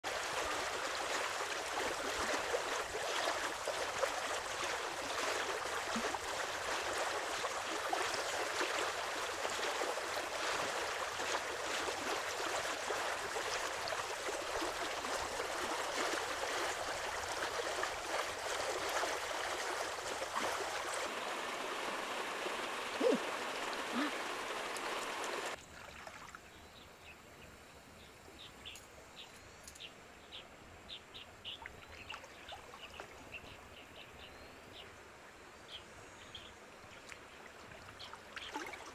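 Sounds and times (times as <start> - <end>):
splashes from wading: 0.0 - 26.4, 37.7 - 38.9
flowing river water: 0.0 - 27.4, 29.8 - 38.9.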